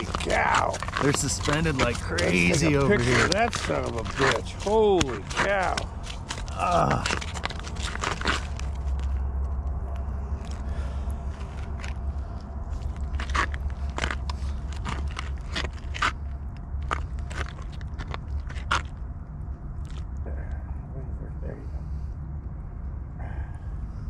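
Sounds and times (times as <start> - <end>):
boots crunching on snowy ice: 0.0 - 9.1
steady low rumble: 0.0 - 24.0.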